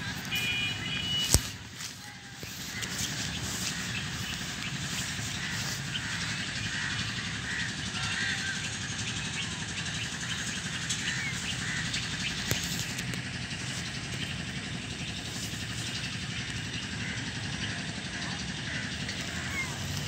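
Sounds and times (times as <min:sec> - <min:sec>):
bird chirps: 0:00.0 - 0:07.2
steady low rumble: 0:00.0 - 0:20.0.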